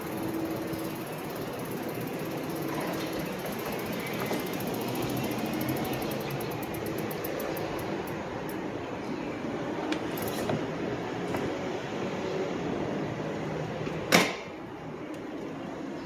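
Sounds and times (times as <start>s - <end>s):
tyres rolling on concrete: 0.0s - 8.4s.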